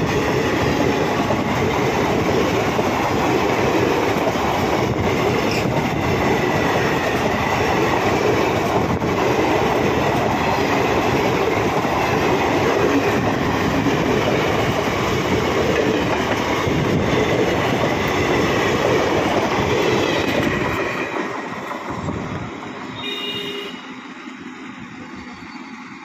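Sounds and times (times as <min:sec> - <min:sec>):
train wheels rumbling on rails: 0:00.0 - 0:26.0.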